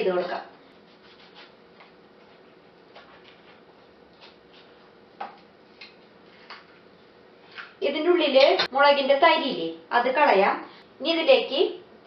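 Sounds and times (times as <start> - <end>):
faint steady hum: 0.0 - 12.0
knife cutting chilli skin: 4.2 - 4.8.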